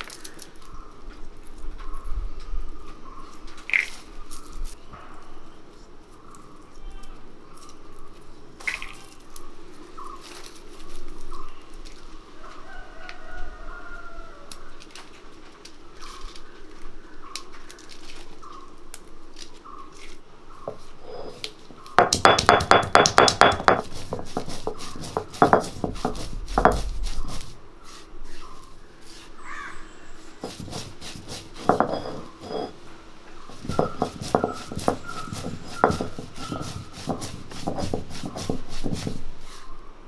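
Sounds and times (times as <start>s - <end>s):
scattered clicks and knocks: 22.0s - 26.9s, 33.5s - 39.2s.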